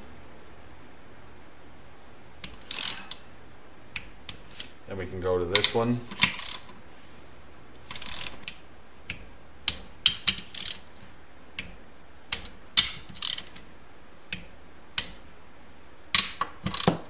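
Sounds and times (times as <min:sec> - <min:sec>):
torque wrench ratchet clicking: 0:02.6 - 0:03.2, 0:06.2 - 0:06.7, 0:07.9 - 0:08.4, 0:10.1 - 0:10.9, 0:12.8 - 0:13.6, 0:16.6 - 0:17.0.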